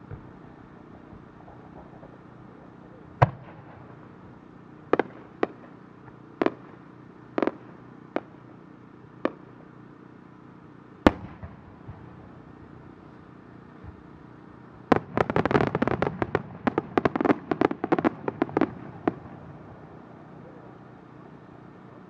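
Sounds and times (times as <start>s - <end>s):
fireworks bangs: 0.0s - 8.4s, 11.0s - 12.6s, 13.7s - 20.1s
steady low background noise: 0.0s - 22.0s.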